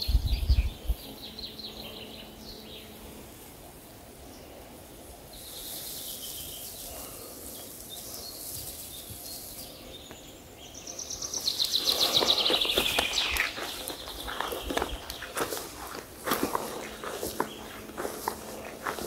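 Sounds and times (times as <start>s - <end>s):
songbird rapid falling song: 0.0s - 3.1s, 5.3s - 19.0s
faint birdsong: 0.0s - 19.0s
insects buzzing: 0.0s - 19.0s
footsteps on forest floor: 11.3s - 19.0s.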